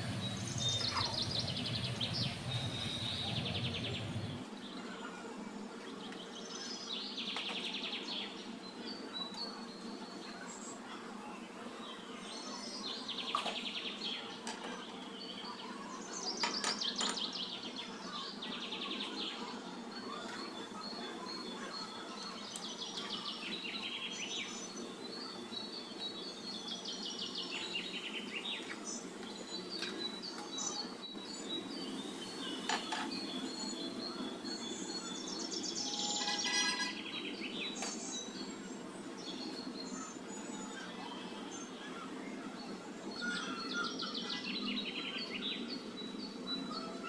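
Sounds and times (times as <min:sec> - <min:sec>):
steady low hum: 0:00.0 - 0:04.6
small birds chirping and trilling: 0:00.0 - 0:47.0.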